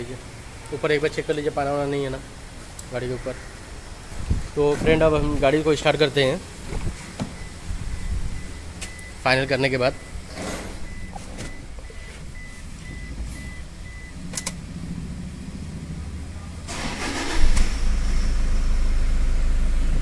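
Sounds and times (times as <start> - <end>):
diesel engine cranking and idling: 0.0 - 20.0
car warning chime beeping: 7.2 - 14.6.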